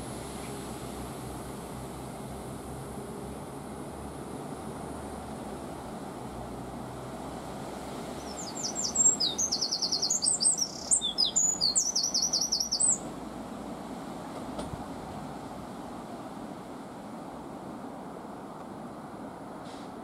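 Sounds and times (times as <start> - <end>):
diesel train rumbling: 0.0 - 20.0
songbird trilling song: 8.1 - 13.1.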